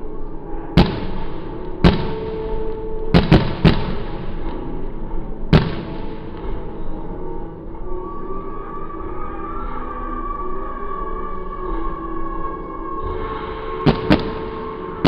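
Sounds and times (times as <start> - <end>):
steady background noise: 0.0 - 15.0
fireworks bangs: 0.8 - 4.6, 5.5 - 6.4, 13.8 - 15.0.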